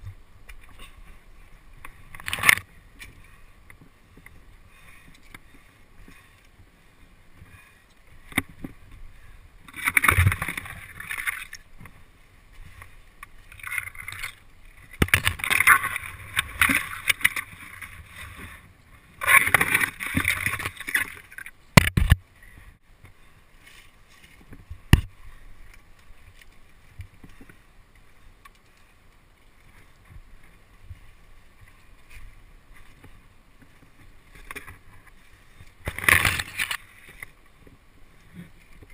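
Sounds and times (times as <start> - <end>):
leaves and branches rustling: 0.0 - 38.9.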